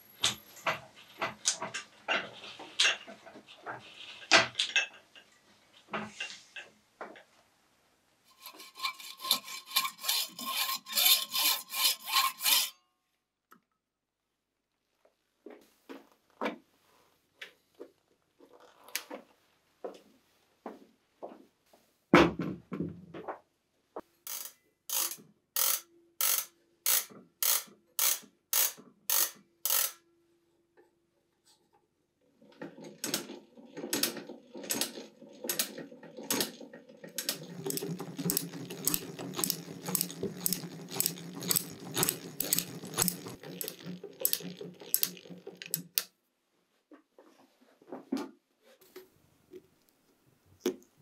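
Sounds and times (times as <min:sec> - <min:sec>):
gear whir: 0:08.3 - 0:12.7, 0:33.8 - 0:46.0
ratchet clicks: 0:08.8 - 0:12.6, 0:24.3 - 0:30.0, 0:37.2 - 0:46.1.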